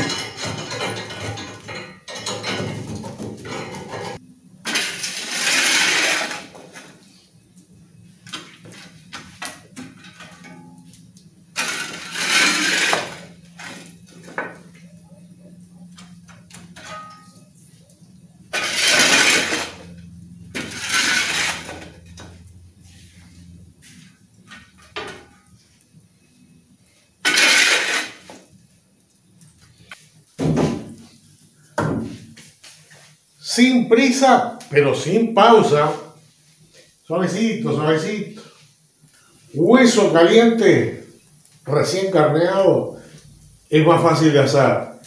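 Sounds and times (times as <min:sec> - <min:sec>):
metal shovel scraping coals on brick: 0:03.4 - 0:07.4, 0:08.3 - 0:25.8, 0:26.8 - 0:28.5.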